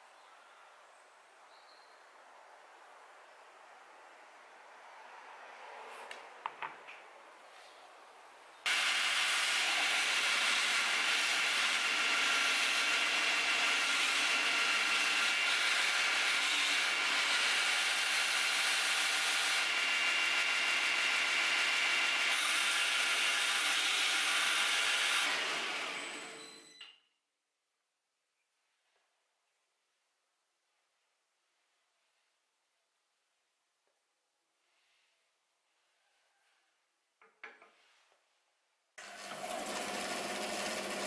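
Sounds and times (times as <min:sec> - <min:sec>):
belt grinder grinding metal: 0:08.7 - 0:26.6, 0:39.0 - 0:41.0.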